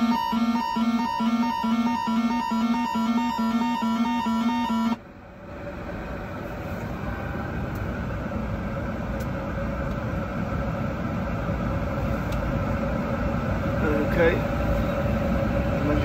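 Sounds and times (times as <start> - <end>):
faint steady tone: 0.0 - 5.0
flight deck air and equipment hum: 0.0 - 16.0.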